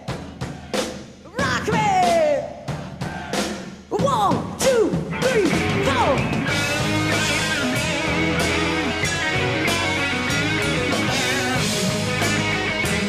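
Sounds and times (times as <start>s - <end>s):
rock band playing: 0.0s - 13.0s
electric lead guitar bending notes: 5.5s - 13.0s.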